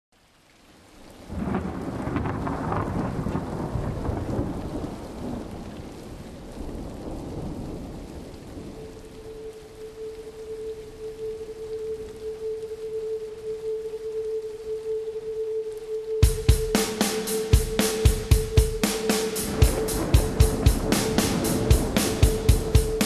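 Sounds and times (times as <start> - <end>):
rain hiss: 0.2 - 23.0
thunder rolling: 1.3 - 9.5, 16.2 - 23.0
steady held tone: 9.2 - 23.0.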